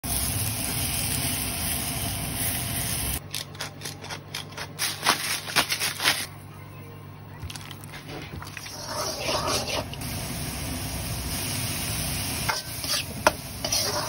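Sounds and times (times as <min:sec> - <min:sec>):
meat sizzling on hot plate: 0:00.1 - 0:03.2, 0:09.6 - 0:14.0.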